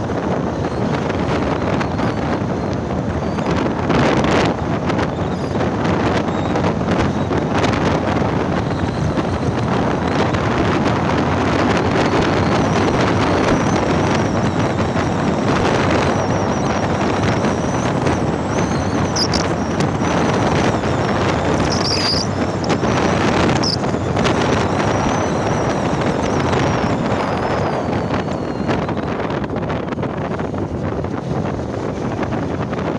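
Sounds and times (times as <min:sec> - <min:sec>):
wind roaring over microphone: 0:00.0 - 0:32.9
motorcycle engine: 0:04.2 - 0:32.6
high chirps: 0:17.4 - 0:22.9, 0:23.6 - 0:23.8.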